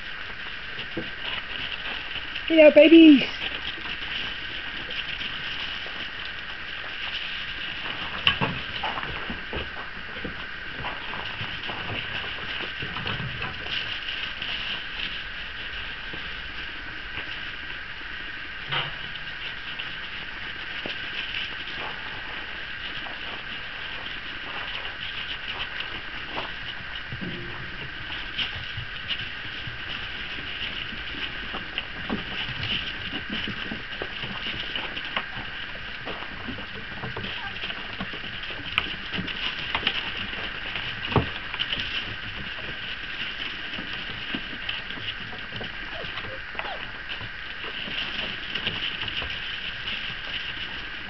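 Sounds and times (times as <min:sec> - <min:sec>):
puppy paws ticking on decking: 0:18.7 - 0:51.0.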